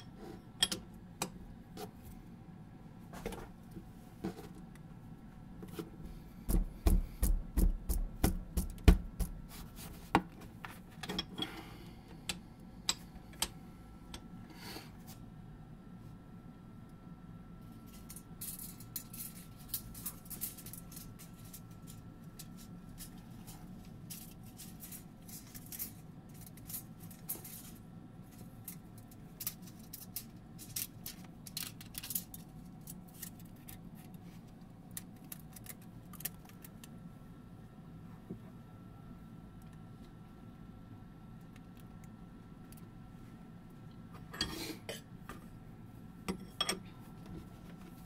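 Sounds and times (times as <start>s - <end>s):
steady low hum: 0.0s - 48.0s
metal foil crinkling and clicking: 18.0s - 37.0s.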